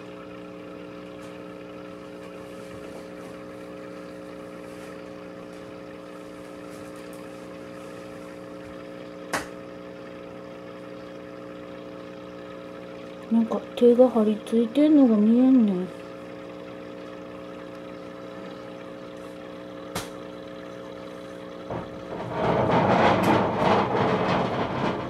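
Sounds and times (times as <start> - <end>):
aquarium air pump humming: 0.0 - 25.0.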